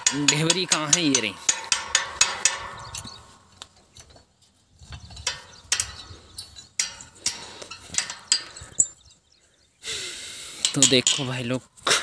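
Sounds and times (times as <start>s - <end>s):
wrench clinking on metal bolt: 5.0s - 9.0s.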